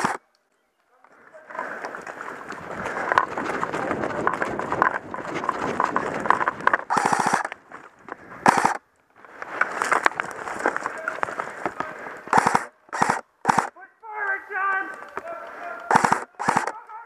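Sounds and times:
airsoft gun full-auto bursts: 0.0 - 0.2, 6.9 - 7.5, 8.4 - 8.8, 12.3 - 13.8, 15.9 - 16.9
footsteps through dry twigs: 1.9 - 12.6.

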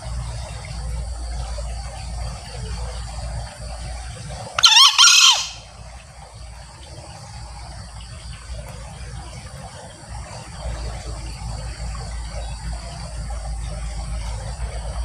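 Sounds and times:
crickets chirping: 0.0 - 15.0
junglefowl crowing: 4.6 - 5.7.

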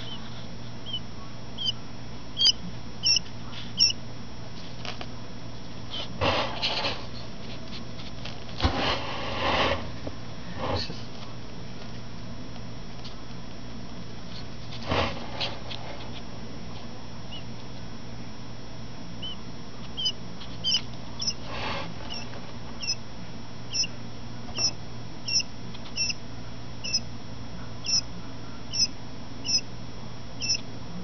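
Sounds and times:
quail chick peeping: 0.0 - 4.0, 17.3 - 17.5, 19.2 - 23.0, 23.7 - 26.2, 26.8 - 29.7, 30.4 - 30.7.

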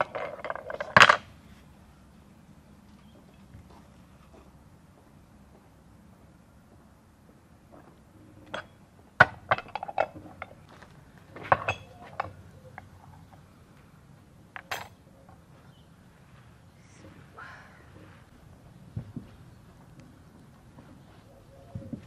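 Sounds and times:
utensils clinking against a bowl: 11.5 - 12.4.

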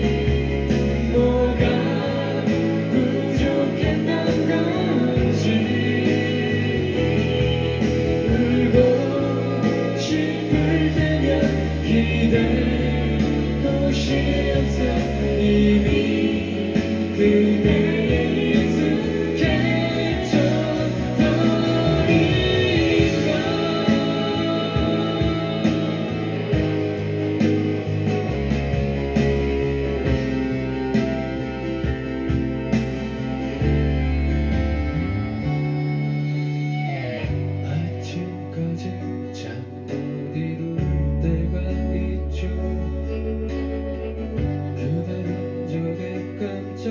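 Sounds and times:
live pop band with singing: 0.0 - 46.9
percussion beat: 13.2 - 34.4.

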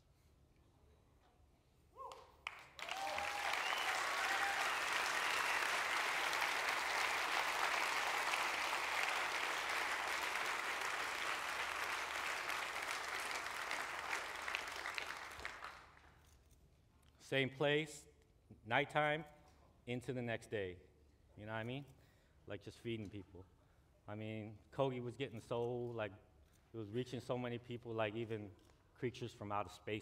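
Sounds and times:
audience applauding: 2.4 - 16.0.

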